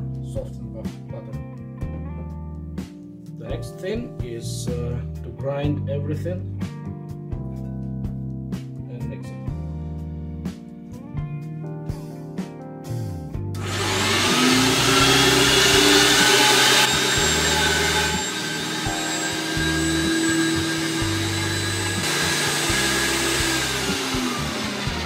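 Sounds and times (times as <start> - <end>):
electric meat grinder motor whining: 13.6 - 25.0.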